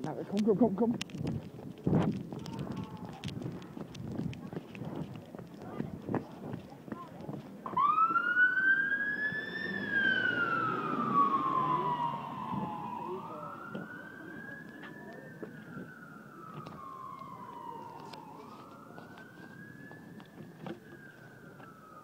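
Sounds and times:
emergency siren wailing: 0:02.3 - 0:04.0, 0:07.6 - 0:22.0.

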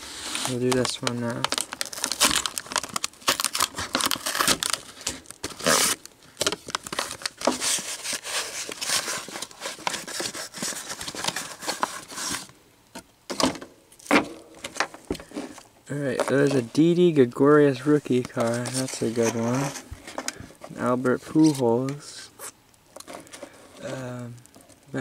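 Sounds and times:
cardboard box tearing: 0:00.2 - 0:12.5.

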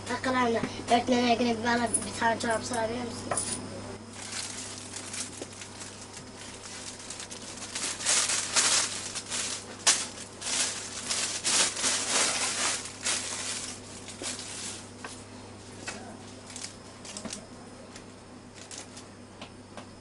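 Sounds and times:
low steady hum: 0:00.0 - 0:20.0
plastic bag crinkling: 0:04.1 - 0:15.1, 0:16.3 - 0:19.1.

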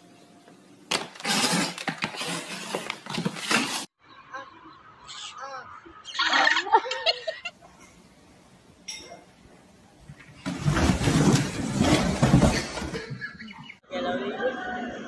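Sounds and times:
box sliding down wooden stairs: 0:10.4 - 0:13.2.

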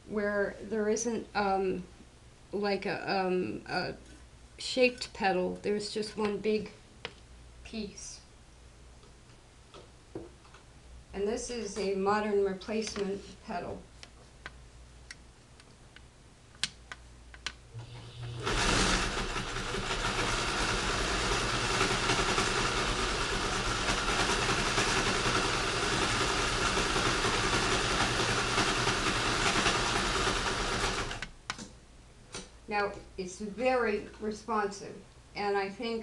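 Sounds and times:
sewing machine running: 0:17.8 - 0:31.3.

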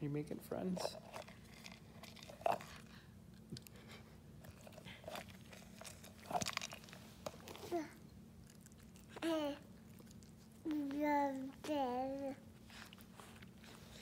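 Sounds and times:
treat being chewed: 0:01.1 - 0:07.6, 0:08.4 - 0:11.6.

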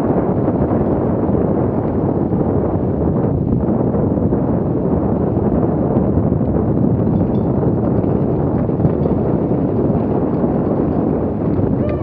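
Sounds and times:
wind buffeting microphone: 0:00.0 - 0:12.0
bike tyres rolling over rocky trail: 0:04.5 - 0:12.0.

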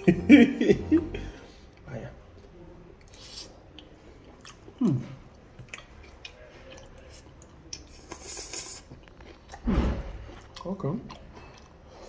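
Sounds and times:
person humming: 0:00.0 - 0:01.4
person chewing: 0:00.0 - 0:01.5, 0:03.0 - 0:12.0
slurping noodles: 0:07.1 - 0:08.9.

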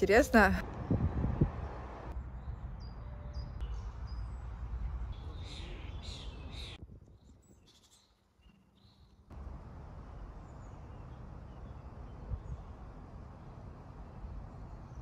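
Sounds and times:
low rumbling background noise: 0:09.3 - 0:15.0.

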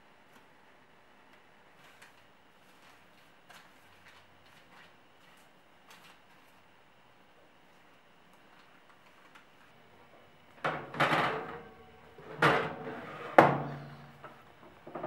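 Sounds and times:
baking tray scraping clatter: 0:12.2 - 0:14.0.

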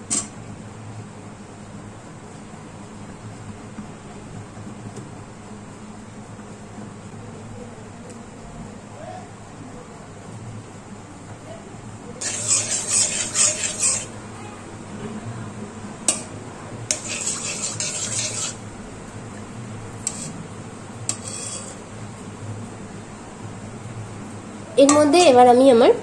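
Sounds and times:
metal spatula scraping wok: 0:12.2 - 0:14.2, 0:16.9 - 0:18.6, 0:20.0 - 0:20.4, 0:21.1 - 0:21.9
spatula tapping pan: 0:16.9 - 0:18.6.

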